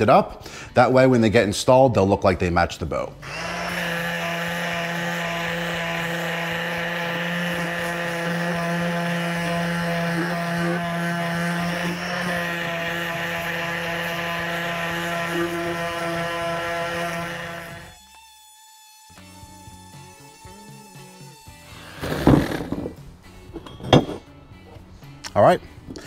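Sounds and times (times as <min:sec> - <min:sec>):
electric sander running: 0:03.2 - 0:23.0.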